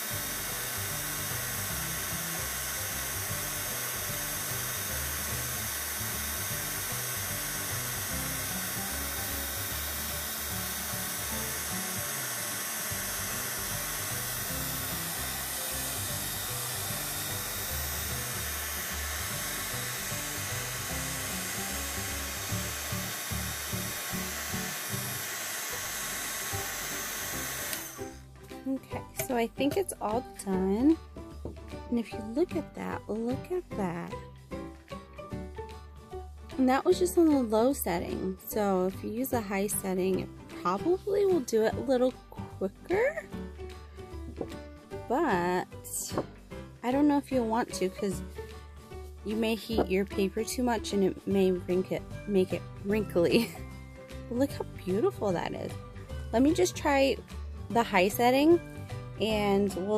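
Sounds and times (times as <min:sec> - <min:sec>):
heat gun blower hiss: 0:00.0 - 0:28.3
soft background music: 0:00.0 - 0:59.9.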